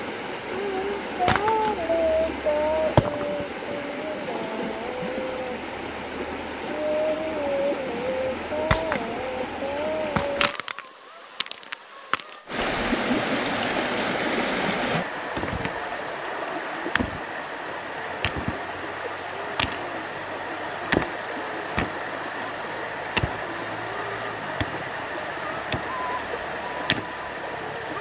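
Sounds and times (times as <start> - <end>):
river water running over rocks: 0.0 - 28.0
stones knocking together: 1.2 - 1.7, 3.0 - 3.3, 8.6 - 9.0, 10.1 - 12.6, 15.3 - 15.8, 16.9 - 17.2, 18.2 - 18.6, 19.6 - 19.9, 20.9 - 22.0, 23.2 - 23.6, 24.5 - 24.9, 25.6 - 26.2, 26.8 - 27.1.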